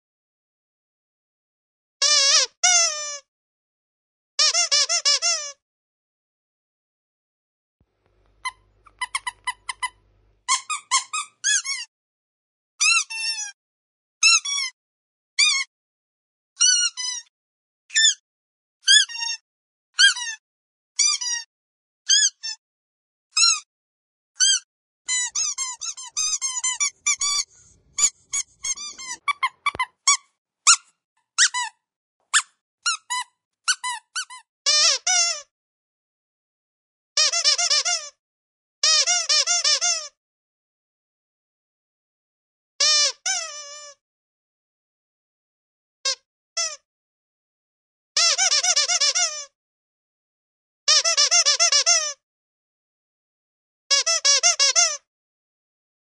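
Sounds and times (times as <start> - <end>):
rubber dog toy squeaking: 2.0 - 3.3, 4.4 - 5.6, 8.4 - 11.9, 12.8 - 13.6, 14.2 - 14.8, 15.4 - 15.7, 16.6 - 17.3, 17.9 - 18.2, 18.8 - 19.4, 20.0 - 20.4, 21.0 - 21.5, 22.1 - 22.6, 23.4 - 23.7, 24.4 - 35.5, 37.2 - 38.2, 38.8 - 40.2, 42.8 - 44.0, 46.0 - 46.8, 48.2 - 49.6, 50.9 - 52.2, 53.9 - 55.1.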